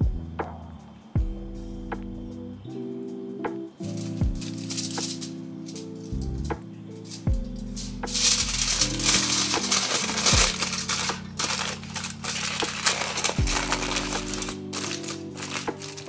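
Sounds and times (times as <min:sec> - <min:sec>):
soft background music: 0:00.0 - 0:16.0
aluminium foil crinkling: 0:03.8 - 0:16.0.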